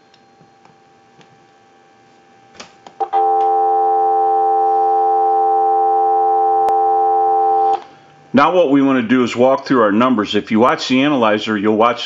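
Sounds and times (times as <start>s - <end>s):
telephone dial tone: 3.0s - 7.8s.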